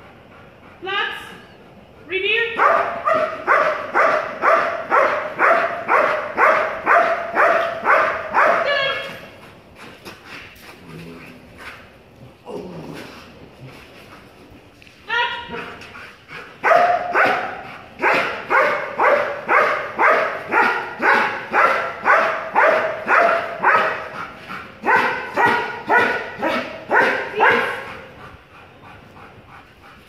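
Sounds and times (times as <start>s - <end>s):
dog barking: 2.6s - 9.0s, 16.6s - 24.1s, 24.8s - 27.9s.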